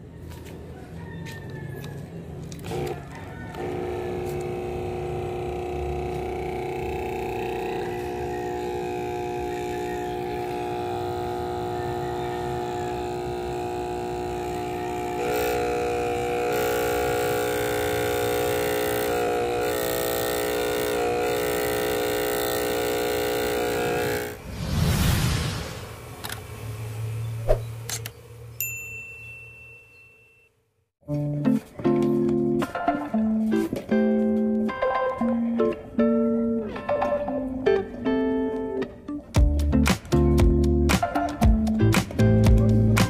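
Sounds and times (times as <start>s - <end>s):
air pump buzzing: 2.5s - 24.4s.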